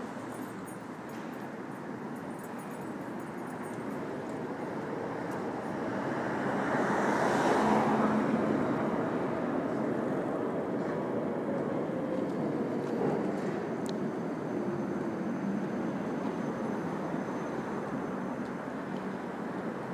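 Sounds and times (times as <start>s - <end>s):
city traffic: 0.0s - 19.9s.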